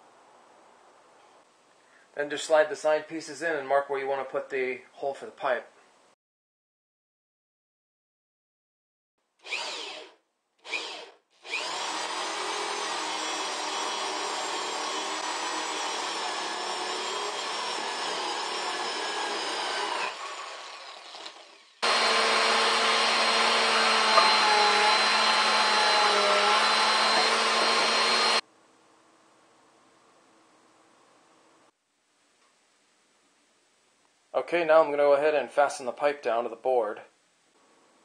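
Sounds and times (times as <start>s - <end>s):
electric drill boring wood: 9.4s - 28.4s
vacuum cleaner running: 21.8s - 28.4s.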